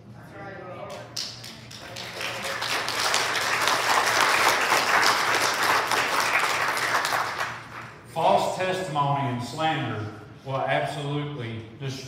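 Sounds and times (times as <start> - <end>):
crowd applauding: 1.1 - 8.0.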